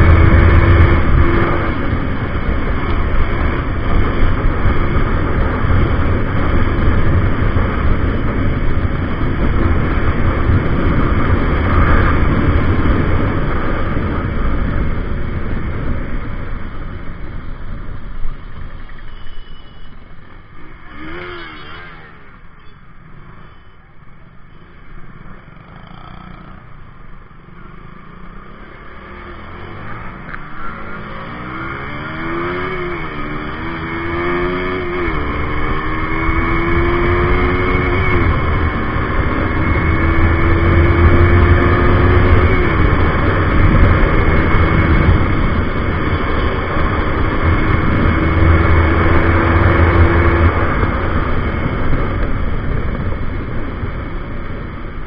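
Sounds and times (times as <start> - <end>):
motorcycle accelerating through gears: 0.0 - 19.0, 20.2 - 55.0
wind rush: 26.6 - 55.0.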